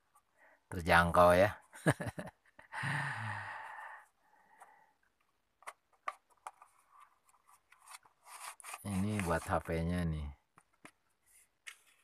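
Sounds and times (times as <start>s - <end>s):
man sighing: 2.7s - 4.0s
plastic headset clicks and taps: 5.2s - 6.7s.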